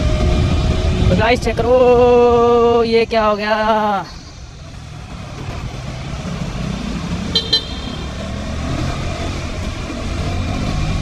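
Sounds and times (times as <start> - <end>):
motorcycle engine rumble: 0.0 - 11.0
horn beeps: 7.3 - 8.3.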